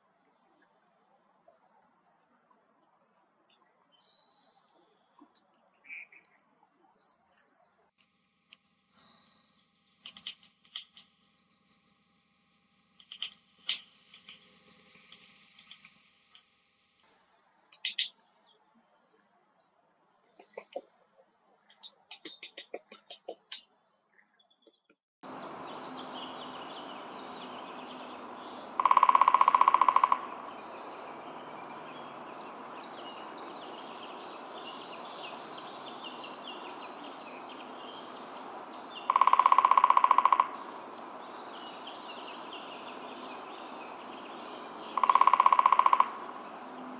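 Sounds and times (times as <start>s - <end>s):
faint bird chirps: 0.0s - 7.7s, 8.9s - 16.2s, 21.7s - 46.9s
outdoor hiss: 12.1s - 18.0s, 25.2s - 39.1s, 40.5s - 45.0s
woodpecker drumming on wood: 25.3s - 46.9s.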